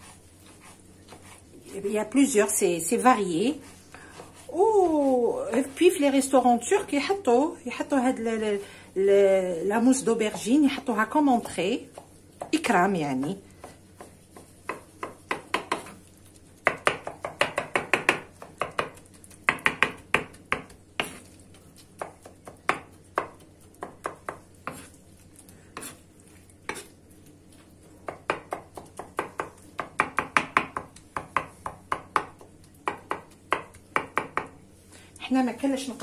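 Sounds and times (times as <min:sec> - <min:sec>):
knife chopping on wooden board: 0:13.6 - 0:16.0, 0:16.6 - 0:21.2, 0:22.0 - 0:24.9, 0:28.0 - 0:34.6.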